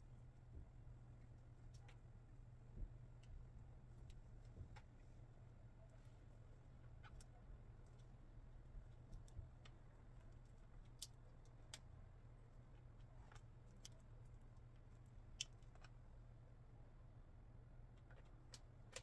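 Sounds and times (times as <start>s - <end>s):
low steady hum: 0.0s - 19.0s
faint clicks and taps: 0.5s - 2.0s, 2.7s - 5.2s, 8.8s - 11.9s, 17.9s - 19.0s.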